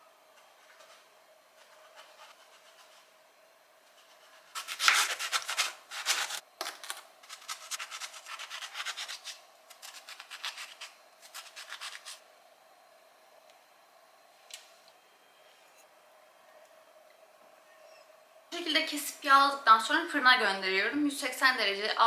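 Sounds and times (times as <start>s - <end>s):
knife slicing eggplant on board: 4.6s - 6.4s.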